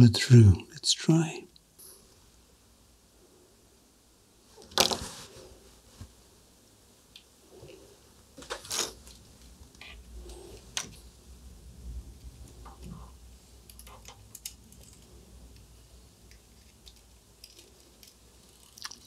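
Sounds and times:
small clicks and ticks: 13.6 - 19.0.

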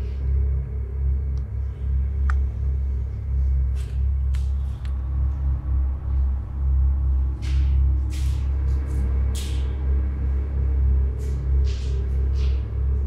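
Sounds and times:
deep low rumble: 0.0 - 13.0.

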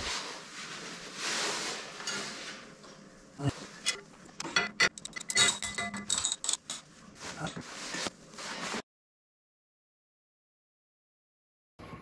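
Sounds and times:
soft rustle: 0.0 - 2.9
tools clicking against metal bolts: 3.8 - 6.8.

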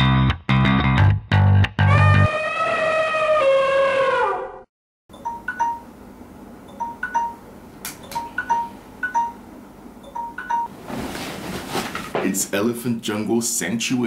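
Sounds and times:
phone alarm chiming tune: 5.1 - 5.9, 6.7 - 7.4, 10.0 - 10.7
bedding rustling: 10.7 - 12.3.

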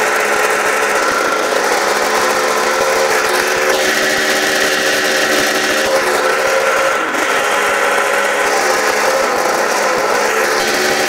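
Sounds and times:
snowmobile engine running: 0.0 - 11.0.

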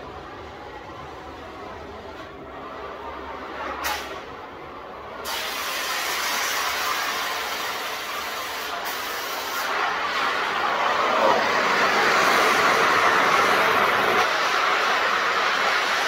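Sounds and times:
cutting torch flame hissing: 5.2 - 16.0.

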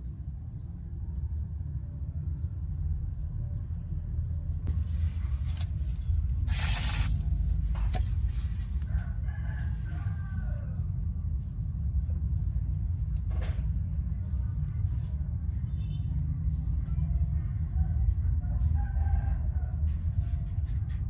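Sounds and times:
steady low rumble: 0.0 - 21.0
rooster crowing: 8.8 - 10.9, 18.5 - 20.5.

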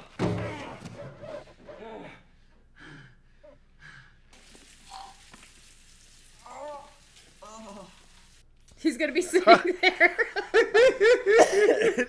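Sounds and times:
breathy sounds: 0.4 - 5.4.

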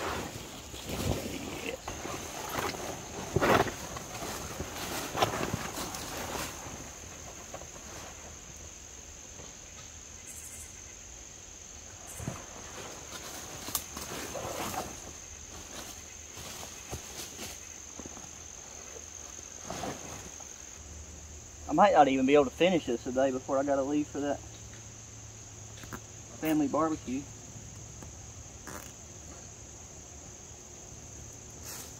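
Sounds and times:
canvas tarp rustling: 0.0 - 8.6, 12.0 - 20.8.

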